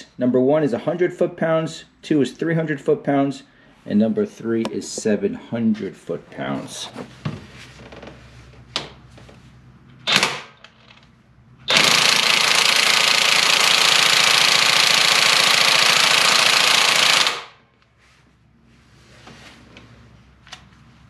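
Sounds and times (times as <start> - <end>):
impact wrench hammering: 11.7 - 17.5.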